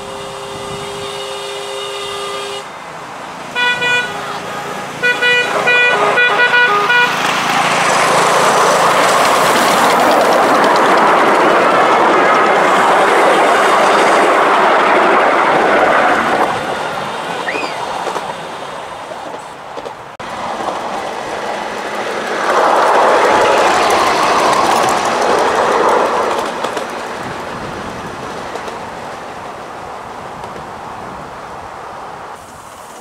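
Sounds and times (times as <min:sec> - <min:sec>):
miniature train wheels clattering: 0:07.2 - 0:12.8, 0:21.6 - 0:27.5.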